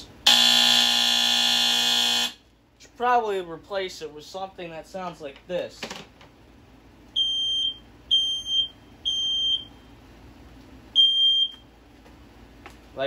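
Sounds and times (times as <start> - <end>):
smoke alarm high beeps: 0.3 - 2.4, 7.2 - 9.8, 11.0 - 11.6.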